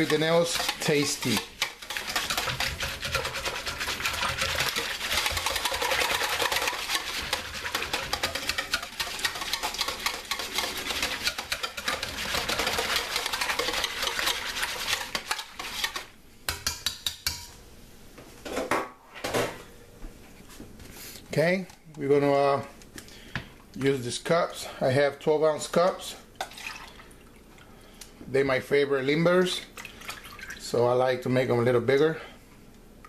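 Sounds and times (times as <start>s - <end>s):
whisk scraping a metal bowl: 0.0s - 16.1s.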